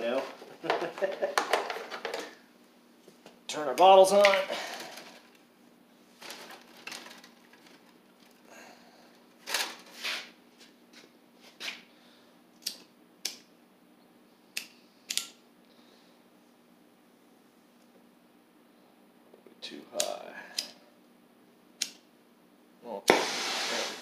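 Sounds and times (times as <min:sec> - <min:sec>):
faint steady hum: 0:00.0 - 0:24.0
torch valve clicks: 0:12.6 - 0:13.5, 0:14.6 - 0:15.4, 0:21.8 - 0:22.1.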